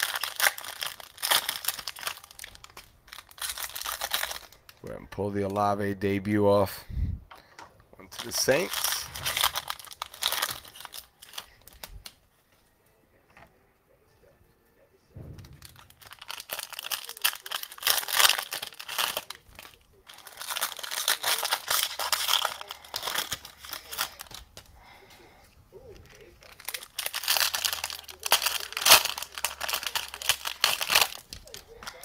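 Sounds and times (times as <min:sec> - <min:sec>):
cellophane wrapper tearing and crinkling: 0:00.0 - 0:04.8, 0:08.1 - 0:12.2, 0:15.5 - 0:25.0, 0:25.9 - 0:32.0.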